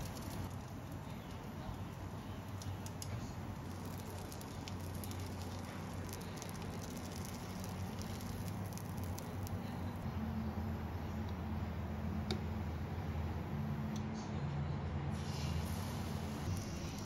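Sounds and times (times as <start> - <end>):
low steady hum: 0.0 - 17.0
food sizzling in oil: 1.8 - 9.4.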